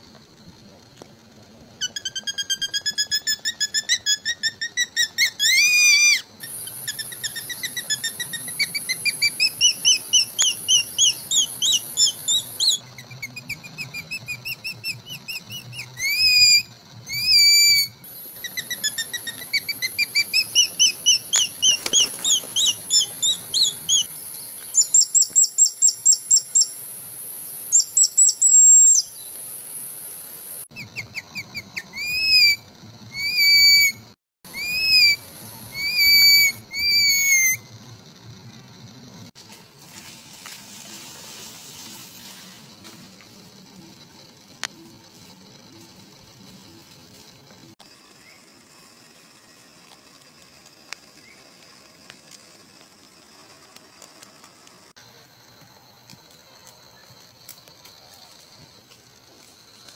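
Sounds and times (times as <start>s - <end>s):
leaf whistle shrill chirps: 1.8s - 37.7s, 47.8s - 49.8s.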